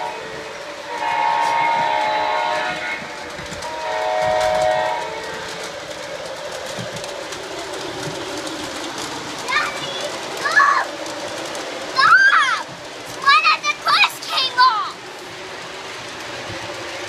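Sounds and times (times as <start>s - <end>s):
model train rumbling and clicking: 0.0s - 17.0s
model train horn blasts: 0.9s - 3.0s, 3.6s - 5.4s.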